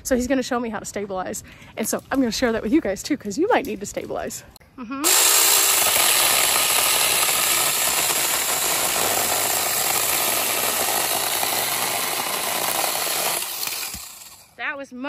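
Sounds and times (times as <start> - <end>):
mini chainsaw cutting a branch: 5.0 - 14.6.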